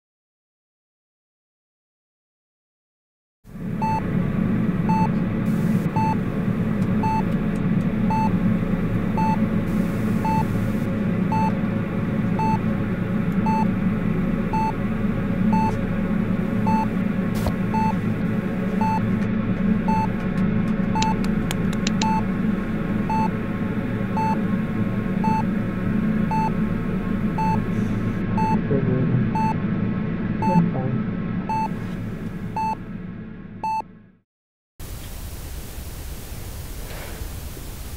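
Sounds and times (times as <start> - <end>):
loud low drone: 3.5 - 34.2
heart monitor beeping: 3.8 - 4.0, 4.9 - 5.2, 5.8 - 6.2, 7.0 - 7.4, 8.1 - 8.4, 9.1 - 11.6, 12.4 - 12.6, 13.4 - 13.7, 14.5 - 14.8, 15.5 - 15.8, 16.6 - 18.1, 18.7 - 22.3, 23.0 - 23.3, 24.1 - 24.4, 25.2 - 25.6, 26.3 - 26.6, 27.3 - 28.6, 29.3 - 29.6, 30.4 - 30.7, 31.5 - 31.8, 32.5 - 32.8, 33.6 - 33.9.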